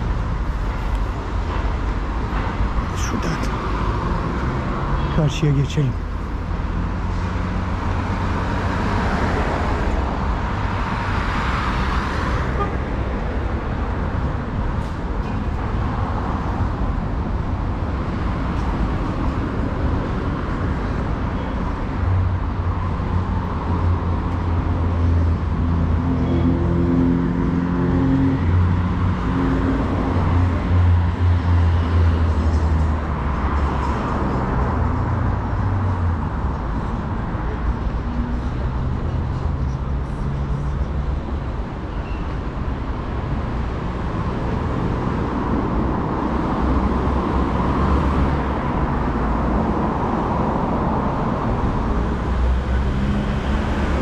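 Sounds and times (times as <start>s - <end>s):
heavy vehicle engine hum: 0.0s - 54.0s
road traffic passing: 0.0s - 54.0s.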